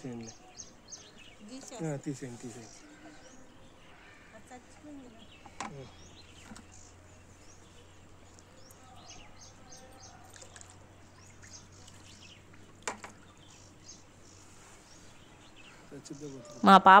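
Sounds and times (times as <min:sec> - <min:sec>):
birds chirping: 0:00.0 - 0:17.0
water pouring and splashing: 0:10.1 - 0:13.3.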